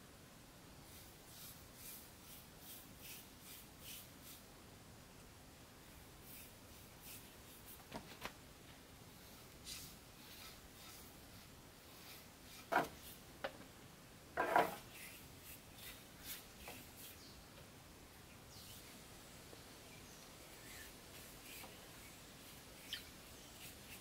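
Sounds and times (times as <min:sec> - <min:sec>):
bristles scratching on wood: 0:09.2 - 0:13.2, 0:14.4 - 0:17.4, 0:20.5 - 0:24.0.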